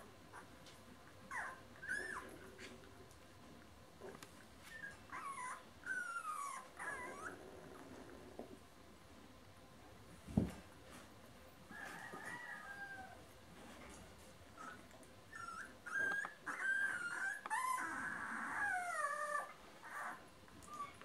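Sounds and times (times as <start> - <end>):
puppies squeaking and whimpering: 1.3 - 2.4, 4.7 - 7.4, 14.6 - 21.0.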